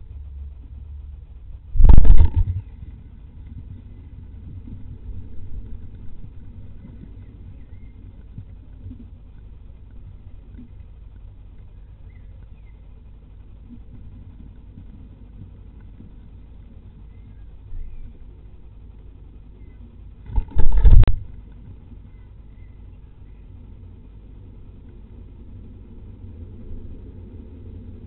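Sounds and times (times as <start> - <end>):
steady low rumble: 0.0 - 28.0
nestlings chirping: 6.7 - 8.4, 11.6 - 13.0, 16.9 - 18.6.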